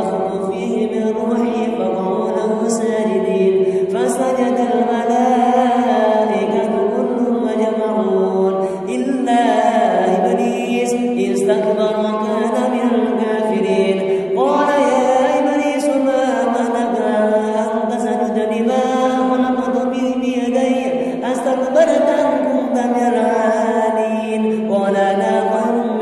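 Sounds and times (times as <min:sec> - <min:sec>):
man chanting melodically: 0:00.0 - 0:26.0.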